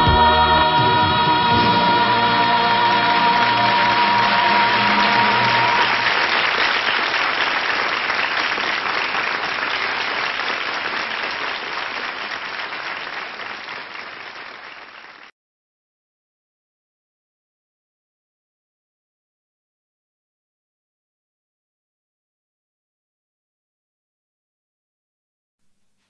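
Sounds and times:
held notes of music: 0.0 - 6.4
audience applauding: 1.8 - 15.3.

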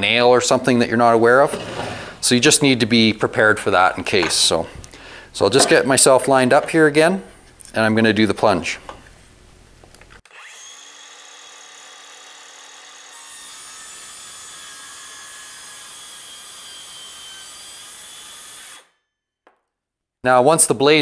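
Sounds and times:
circular saw cutting plywood: 10.2 - 18.9.

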